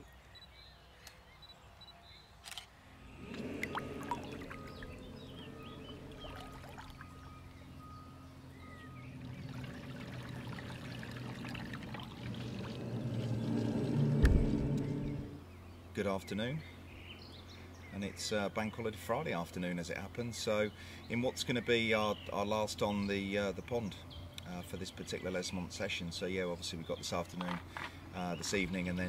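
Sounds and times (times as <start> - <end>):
low bump: 3.0 - 8.0, 12.0 - 15.4
water churning around hull: 3.0 - 15.4
electric motors humming: 3.0 - 15.5.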